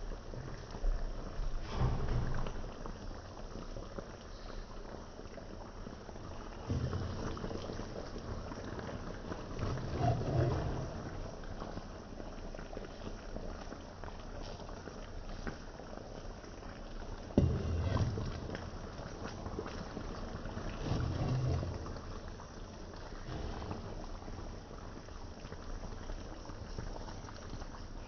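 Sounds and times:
sauce simmering and bubbling: 0.0s - 28.0s
low bumps: 17.4s - 24.8s.

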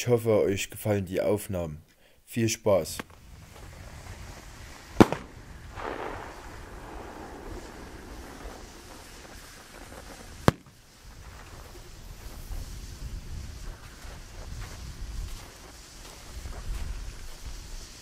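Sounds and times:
soft rushing noise: 2.9s - 18.0s
firework bangs: 3.0s - 15.1s.

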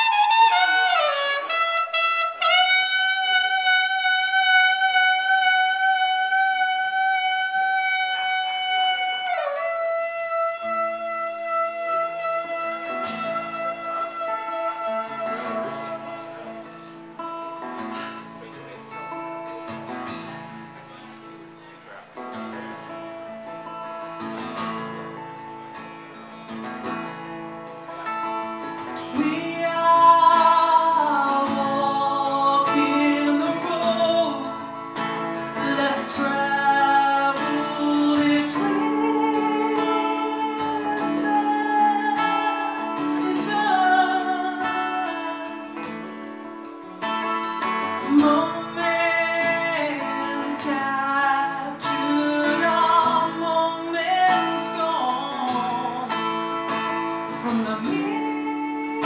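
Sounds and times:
strummed acoustic guitar: 0.0s - 59.0s
woman singing into microphone: 29.1s - 34.8s, 35.5s - 45.9s, 48.0s - 56.2s, 57.3s - 59.0s.

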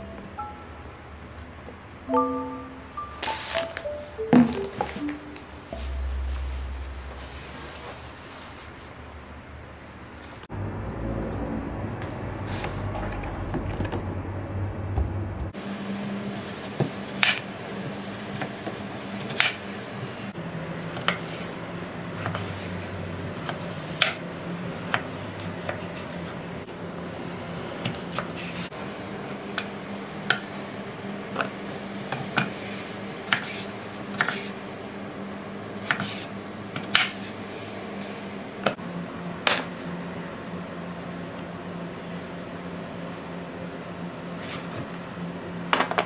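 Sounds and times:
knife cutting potato on board: 20.9s - 21.5s, 22.2s - 24.2s, 33.3s - 34.5s, 35.8s - 37.4s.

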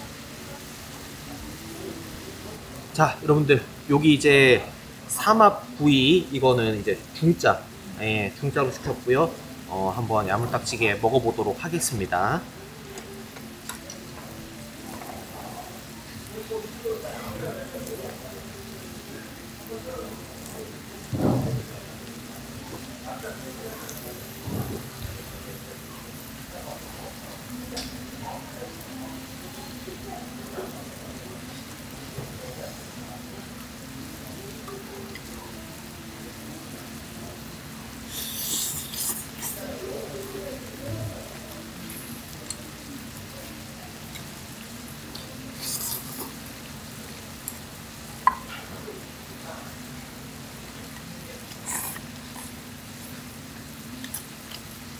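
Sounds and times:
food sizzling on a griddle: 0.0s - 54.9s
eating and tableware noises: 12.8s - 35.9s, 38.0s - 49.8s, 50.6s - 54.9s.

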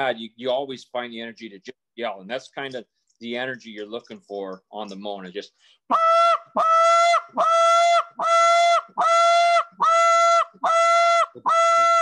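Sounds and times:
goose call moan notes: 5.9s - 12.0s.

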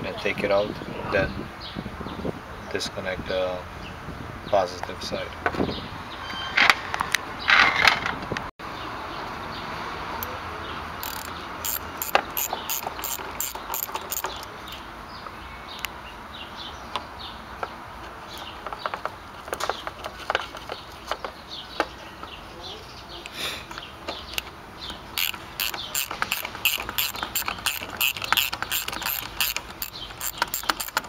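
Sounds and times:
ratchet wrench clicking: 11.0s - 14.8s, 25.1s - 31.0s.

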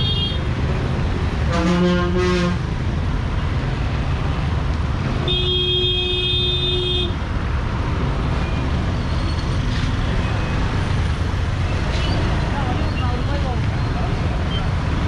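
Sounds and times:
engines rumbling in traffic: 0.0s - 15.0s
vehicle horn: 1.5s - 2.7s, 5.3s - 7.2s.

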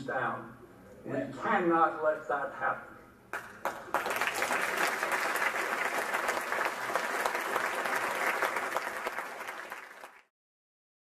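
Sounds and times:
audience applauding: 3.3s - 10.3s.

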